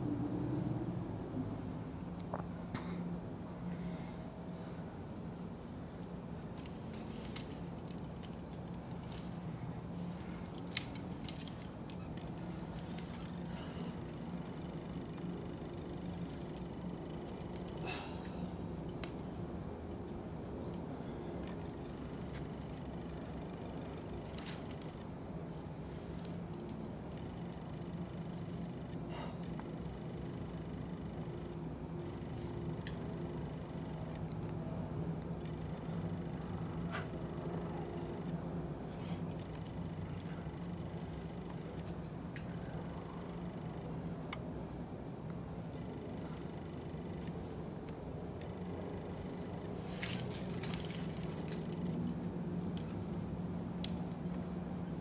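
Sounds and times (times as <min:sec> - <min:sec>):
low mechanical hum: 0:00.0 - 0:55.0
climbing gear clinking: 0:06.0 - 0:25.1, 0:25.8 - 0:38.4, 0:48.4 - 0:53.1.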